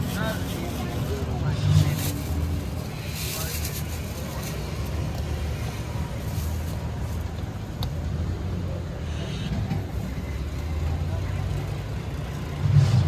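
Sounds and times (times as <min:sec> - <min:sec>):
low rumble of street traffic: 0:00.0 - 0:13.0.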